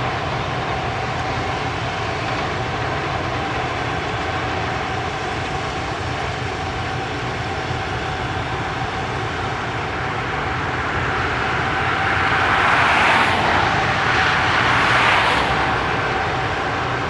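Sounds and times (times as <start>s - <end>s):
heavy machinery running: 0.0s - 17.0s.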